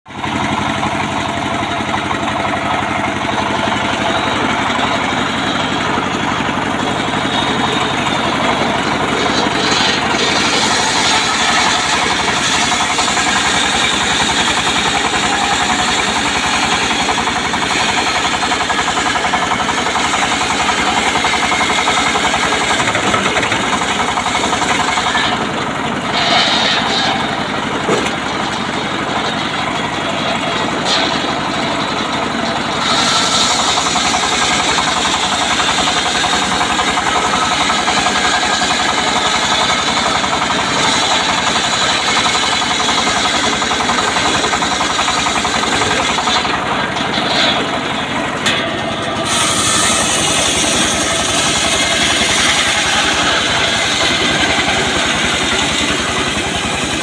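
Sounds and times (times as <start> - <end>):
circular saw cutting log: 0.1 - 57.0
diesel engine running: 0.1 - 57.0
sharp knocks: 26.2 - 28.6.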